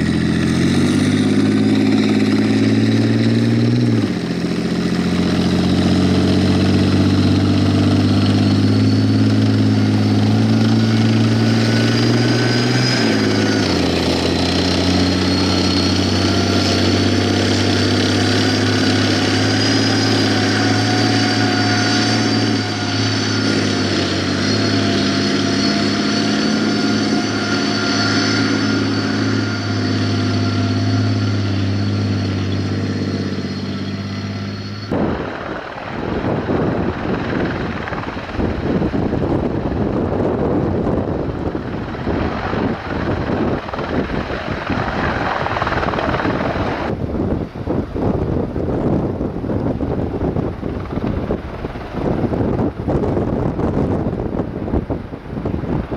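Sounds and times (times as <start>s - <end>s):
heavy vehicle engine running: 0.0s - 55.9s
high whine: 0.0s - 55.9s.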